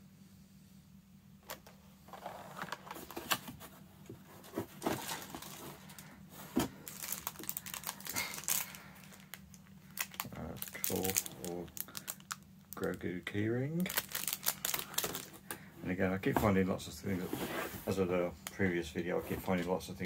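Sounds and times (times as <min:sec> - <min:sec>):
packaging crinkling: 0:04.6 - 0:13.0, 0:13.8 - 0:15.5.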